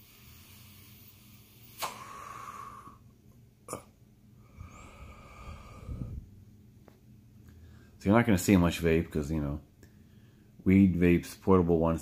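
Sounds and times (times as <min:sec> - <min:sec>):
short airy hiss: 0:00.0 - 0:02.7
person exhaling vapour: 0:00.0 - 0:03.1, 0:03.7 - 0:06.3
vaporizer click: 0:01.6 - 0:02.1.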